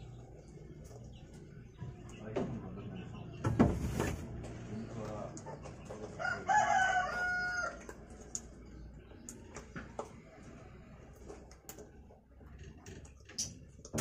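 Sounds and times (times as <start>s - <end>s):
rooster crowing: 6.2s - 7.8s.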